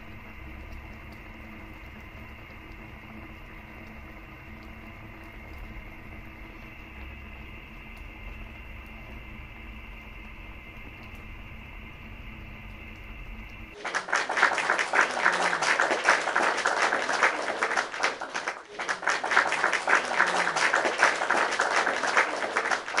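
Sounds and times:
low room hum: 0:00.0 - 0:23.0
applause: 0:13.7 - 0:23.0.

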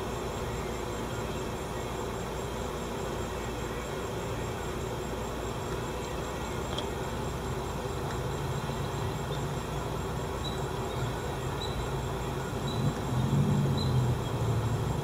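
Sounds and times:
low outdoor rumble: 0:03.3 - 0:15.0.

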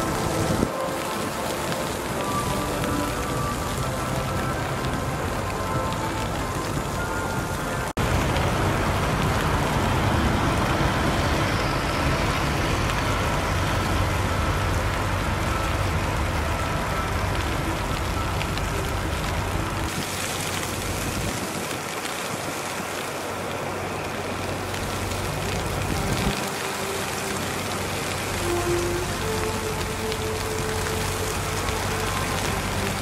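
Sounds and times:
rumble of vehicles: 0:00.0 - 0:33.0.

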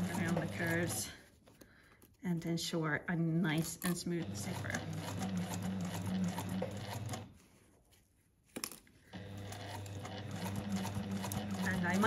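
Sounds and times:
sewing machine stitching: 0:00.0 - 0:01.2, 0:03.6 - 0:07.3, 0:09.1 - 0:12.0.

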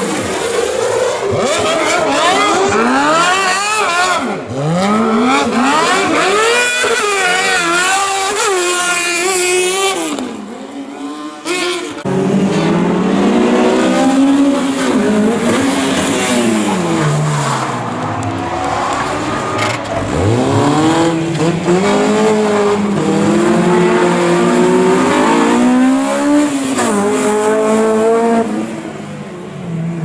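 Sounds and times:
rally car engine revving: 0:00.0 - 0:30.0
deeper car engine revving: 0:12.0 - 0:28.5.

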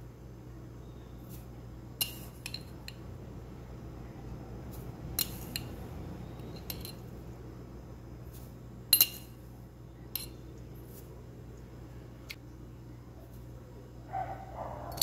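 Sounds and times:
steady low hum: 0:00.0 - 0:15.0
metal spoon clinking against bowl: 0:06.5 - 0:07.0, 0:09.0 - 0:09.4, 0:10.1 - 0:10.4.

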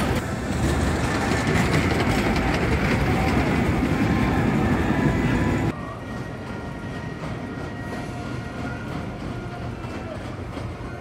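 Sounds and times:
roller coaster train rumbling: 0:00.0 - 0:11.0.

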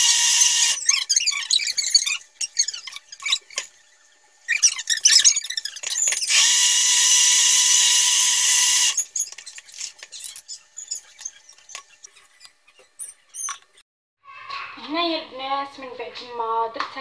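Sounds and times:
blender whining: 0:00.0 - 0:00.9, 0:06.0 - 0:09.0.

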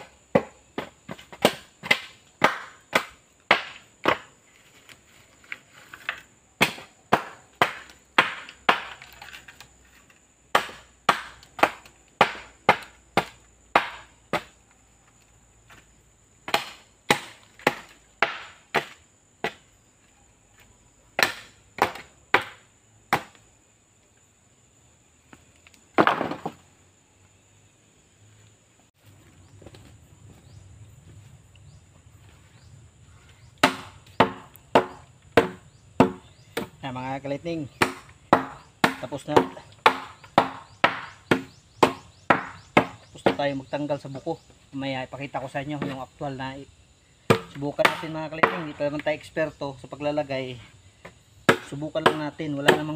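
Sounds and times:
blade chopping bamboo: 0:00.0 - 0:04.3, 0:05.9 - 0:14.6, 0:16.4 - 0:19.7, 0:21.2 - 0:23.4, 0:33.6 - 0:36.8, 0:37.7 - 0:43.4, 0:47.3 - 0:49.1, 0:51.4 - 0:52.9.

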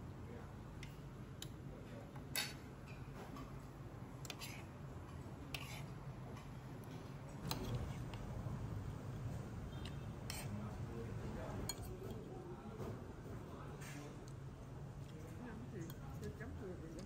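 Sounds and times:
low background hum: 0:00.0 - 0:17.0
cutlery clinking against plates: 0:02.2 - 0:03.6, 0:09.8 - 0:10.6, 0:11.6 - 0:12.3.

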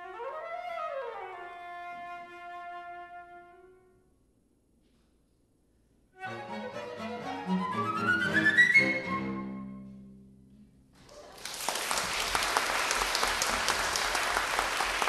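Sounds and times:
flute violins and cello playing: 0:06.2 - 0:10.0
audience applause: 0:11.0 - 0:15.0.

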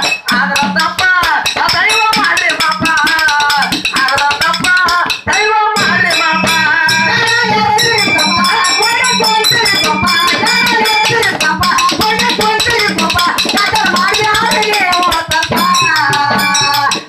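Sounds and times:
barrel hand drum: 0:00.0 - 0:17.0
thin steady high tone: 0:05.8 - 0:11.4.

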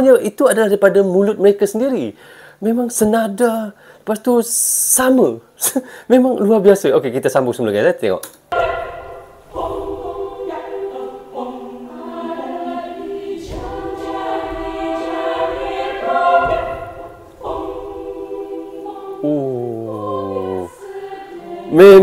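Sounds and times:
choir singing a cappella: 0:08.5 - 0:22.0.

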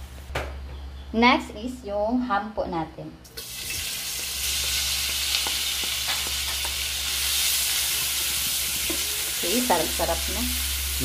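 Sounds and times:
ham sizzling in a frying pan: 0:03.4 - 0:11.0.

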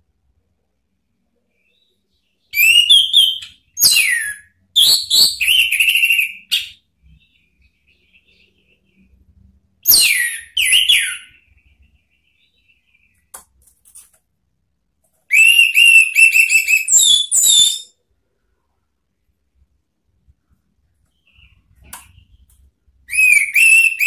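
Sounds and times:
bird singing whistled phrases: 0:02.4 - 0:06.8, 0:09.8 - 0:11.4, 0:15.3 - 0:18.0, 0:23.1 - 0:24.0.

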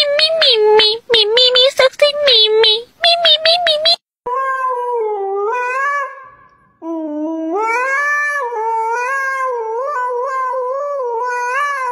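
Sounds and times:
dog howling into microphone: 0:04.3 - 0:11.9.

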